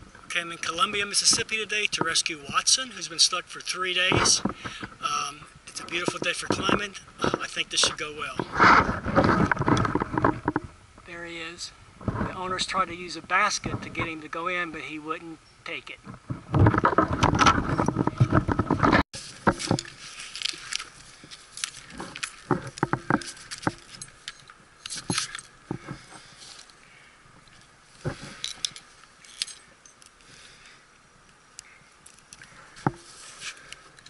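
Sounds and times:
rustling: 0:16.0 - 0:34.0
metal climbing gear clinking: 0:19.5 - 0:26.8, 0:27.4 - 0:30.7.

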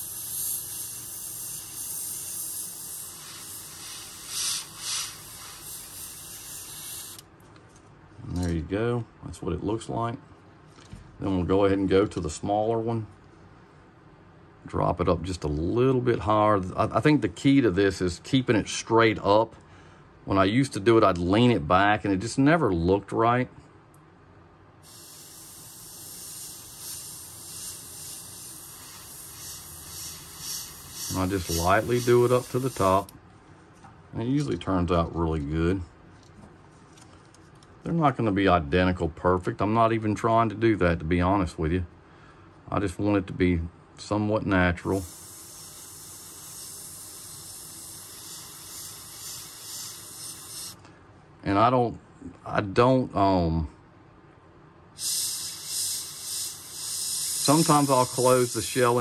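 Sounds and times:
airbrush spraying hiss: 0:00.0 - 0:07.2, 0:24.8 - 0:33.1, 0:44.8 - 0:50.8, 0:55.0 - 0:59.0.

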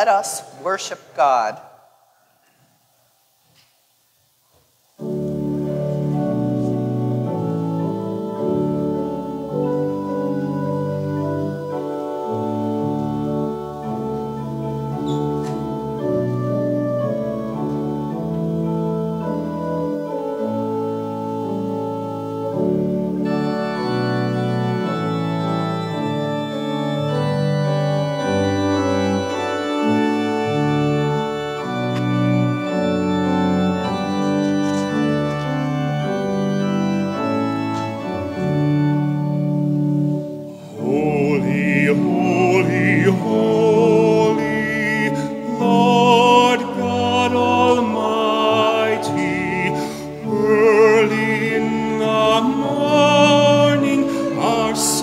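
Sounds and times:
organ playing sustained chords: 0:05.0 - 0:55.0.

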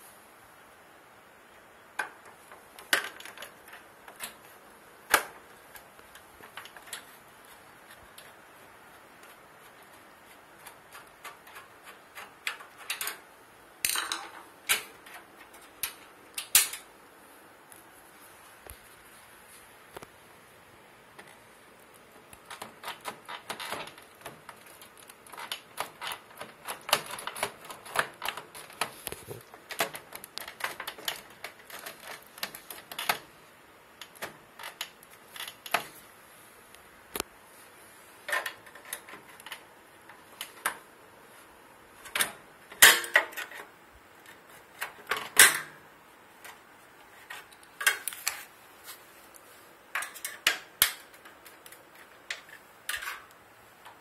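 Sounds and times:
screwdriver clicking on sheet metal: 0:09.2 - 0:16.9, 0:22.3 - 0:33.3.

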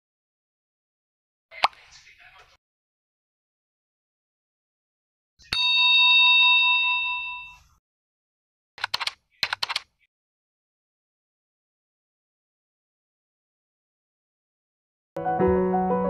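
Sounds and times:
typing clicks: 0:08.8 - 0:09.9.

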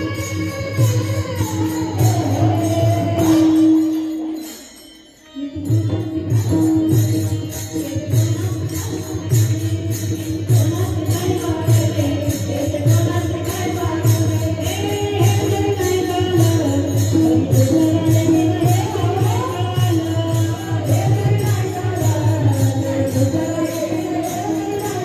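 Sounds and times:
person singing: 0:00.0 - 0:04.6
hand cymbals clashing: 0:00.0 - 0:25.0.

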